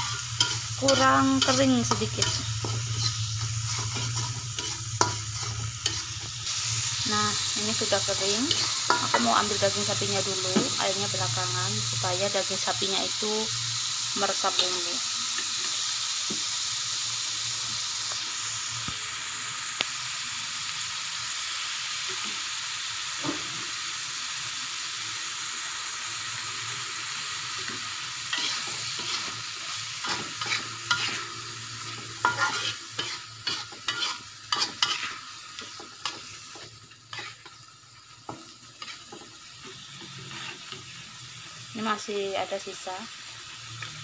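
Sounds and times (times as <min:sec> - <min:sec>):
metal spatula scraping a pan: 0:00.0 - 0:06.7, 0:07.7 - 0:10.4, 0:27.7 - 0:37.7, 0:38.3 - 0:41.0
meat sizzling in a wok: 0:00.0 - 0:44.0.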